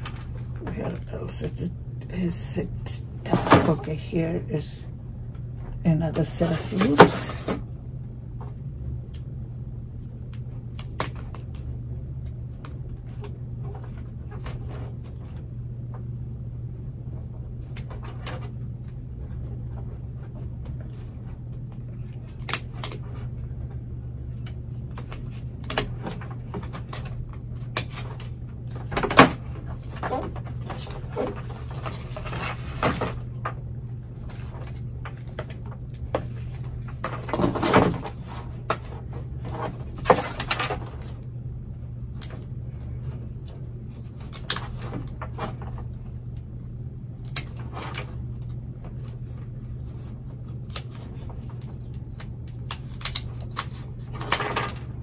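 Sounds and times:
steady low hum: 0:00.0 - 0:55.0
scissors cracking plastic pot: 0:10.3 - 0:11.7, 0:22.2 - 0:23.0, 0:47.2 - 0:47.6, 0:51.8 - 0:54.8.

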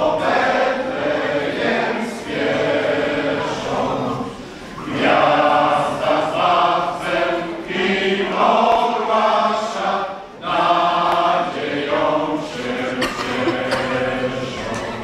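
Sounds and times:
men's choir singing a carol: 0:00.0 - 0:15.0.

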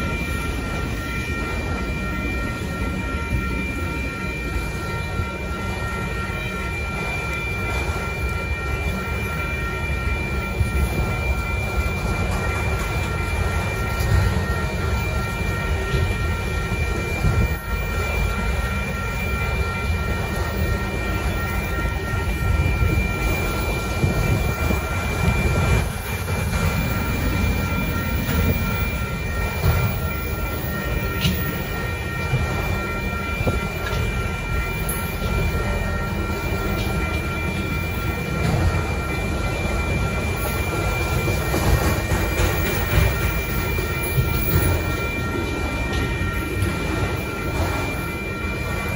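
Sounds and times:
train wheels rumbling on rails: 0:00.0 - 0:48.9.

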